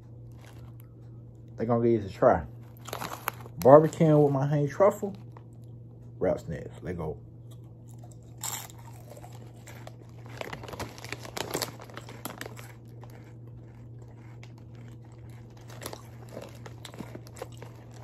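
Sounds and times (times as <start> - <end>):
faint low hum: 0.0 - 18.0
chips being chewed: 0.3 - 0.9, 2.6 - 4.3, 7.5 - 18.0
foil bag crinkling: 0.3 - 0.9, 2.6 - 5.4, 8.4 - 18.0.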